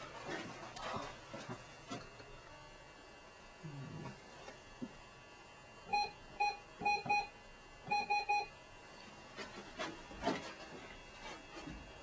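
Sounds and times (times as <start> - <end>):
keypad beeps: 5.9 - 7.3, 7.9 - 8.5.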